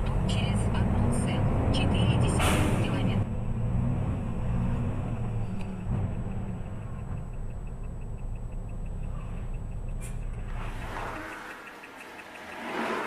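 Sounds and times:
vehicle engine and road rumble: 0.0s - 13.0s
faint fast ticking: 6.2s - 13.0s.

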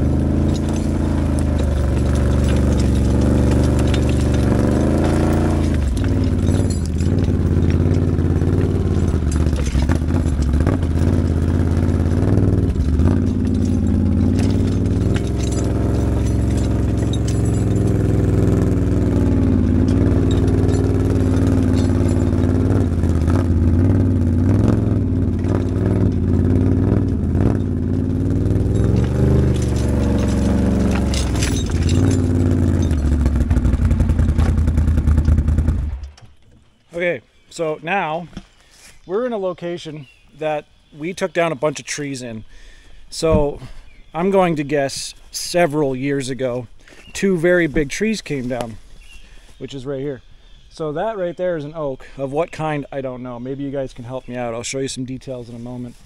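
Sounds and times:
atv engine running: 0.0s - 36.4s
clanks and rattles: 0.0s - 36.8s.

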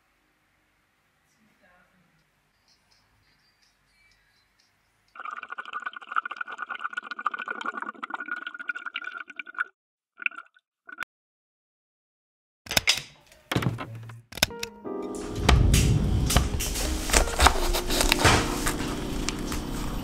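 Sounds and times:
water running into a tumbler: 5.2s - 11.0s.

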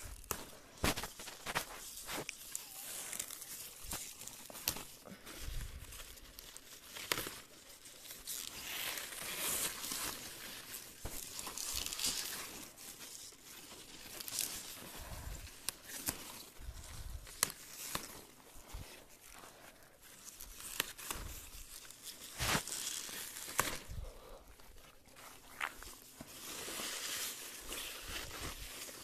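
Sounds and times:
leaves rustling and crinkling: 0.0s - 29.0s.

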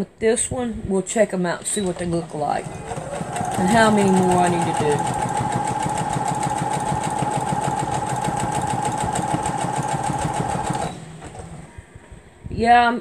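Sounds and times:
sewing machine stitching: 1.6s - 12.0s.

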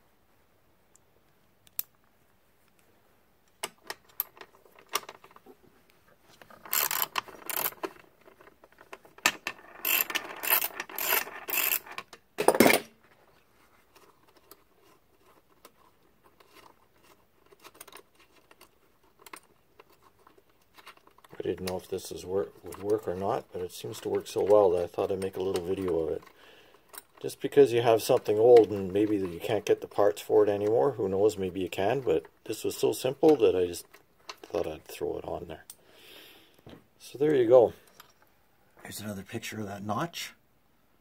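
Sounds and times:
metal parts clicking and rattling: 3.7s - 5.4s, 6.4s - 12.8s, 13.9s - 31.0s.

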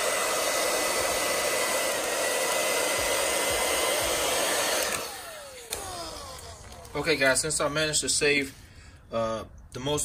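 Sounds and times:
hair dryer running: 0.0s - 7.6s.

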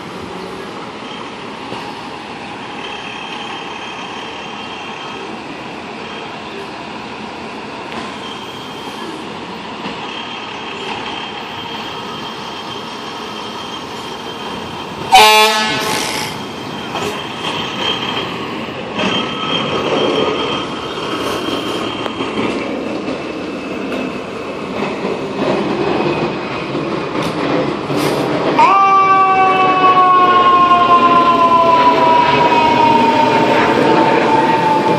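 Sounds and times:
air horn blast: 15.1s - 16.3s.

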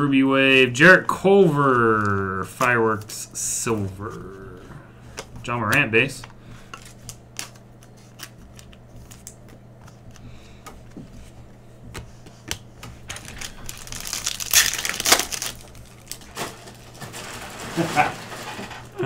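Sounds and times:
trading cards clicking: 5.1s - 10.8s
wrapper crinkling as torn open: 13.1s - 18.6s.

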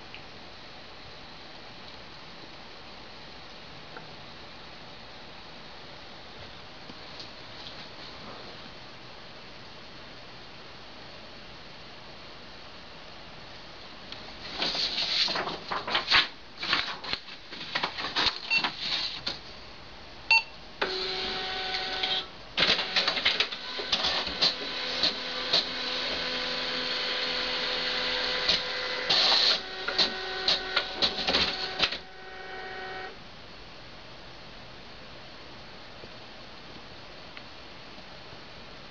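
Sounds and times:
printer clicks and rattles: 20.8s - 32.2s
printer motor hum: 20.8s - 33.2s.

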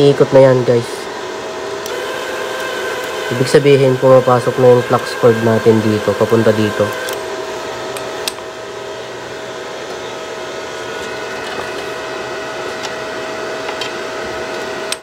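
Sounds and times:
welder wire-feed motor whining: 1.7s - 8.0s.

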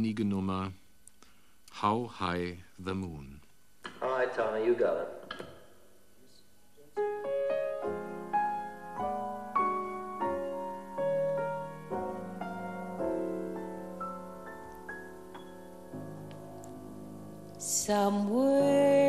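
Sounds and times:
slow piano chords: 6.8s - 19.0s.

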